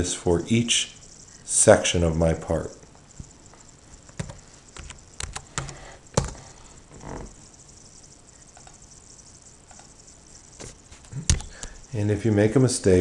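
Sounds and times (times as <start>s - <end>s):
faint ticks: 7.7s - 9.0s, 9.6s - 10.5s.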